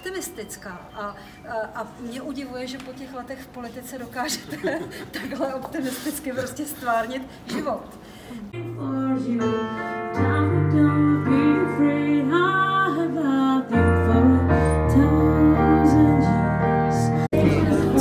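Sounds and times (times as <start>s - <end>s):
keyboard accompaniment: 8.6s - 18.0s
woman singing into microphone: 8.6s - 18.0s.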